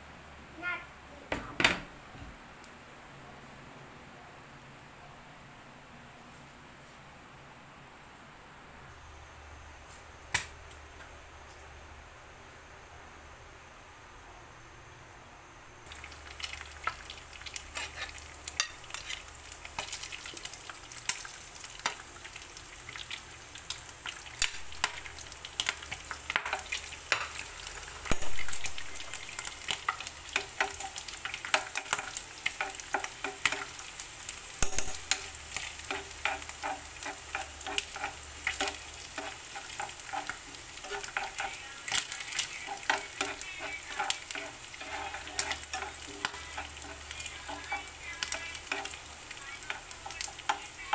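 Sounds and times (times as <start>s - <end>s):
garlic sizzling in oil: 15.8s - 50.9s
metal spoon scraping pan: 17.7s - 19.9s, 34.7s - 50.7s.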